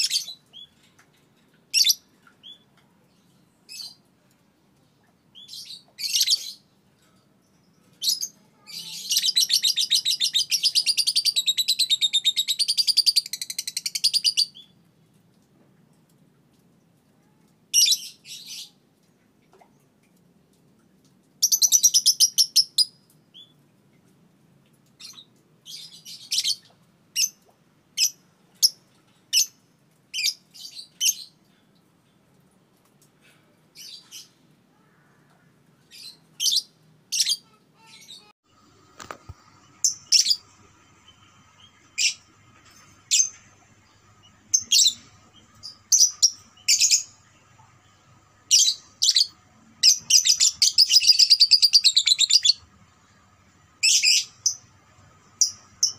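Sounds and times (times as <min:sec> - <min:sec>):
high-pitched bird chirps: 0:08.0 - 0:14.7, 0:39.4 - 0:42.3, 0:43.0 - 0:47.9, 0:48.5 - 0:52.7, 0:53.8 - 0:54.7
bird chattering trill: 0:48.5 - 0:52.6.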